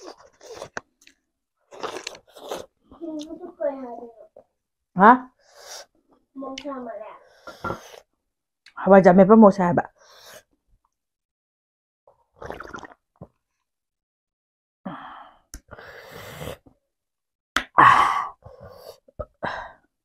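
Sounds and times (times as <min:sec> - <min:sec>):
person drinking: 0:01.7 - 0:02.8, 0:12.4 - 0:13.0
breathy exhales and gasps: 0:17.7 - 0:19.9.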